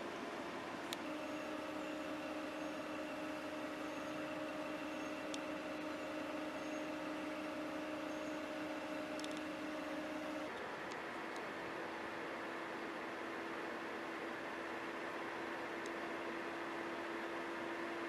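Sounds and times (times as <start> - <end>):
two-tone mechanical hum: 0.0 - 18.0
faint click: 5.3 - 5.5.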